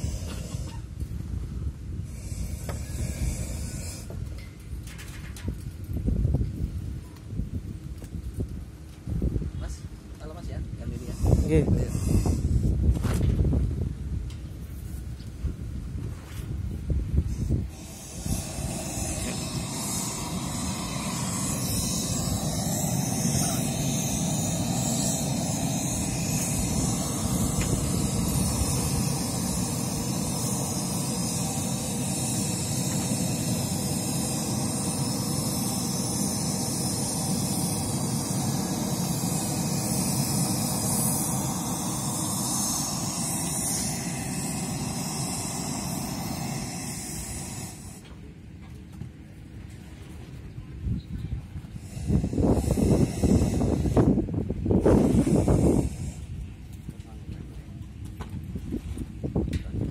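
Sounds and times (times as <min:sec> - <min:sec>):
loudspeaker test noise hiss: 0:09.5 - 0:12.8, 0:17.4 - 0:48.4, 0:51.8 - 0:54.1, 0:54.8 - 0:56.2.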